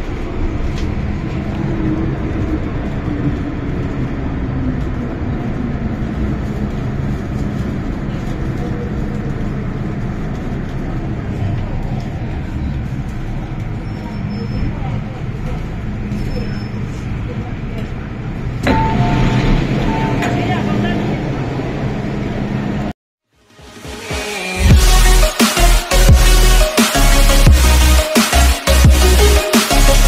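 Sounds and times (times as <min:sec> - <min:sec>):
train wheels rumbling: 0:00.0 - 0:22.9.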